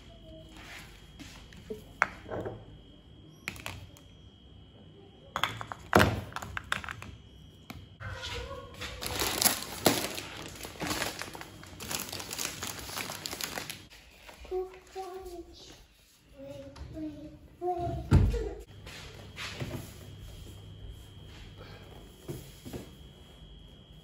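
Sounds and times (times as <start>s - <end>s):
plastic packs crinkling: 9.0s - 13.9s.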